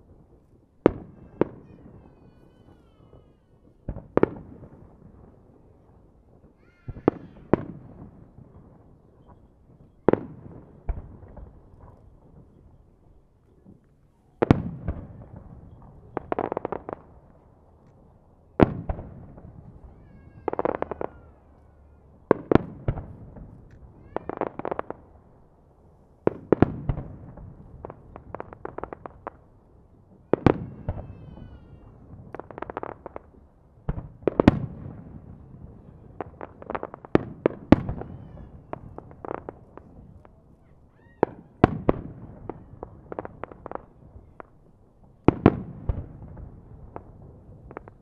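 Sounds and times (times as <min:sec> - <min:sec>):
crackling pops: 0:41.0 - 0:44.7, 0:46.9 - 0:48.0.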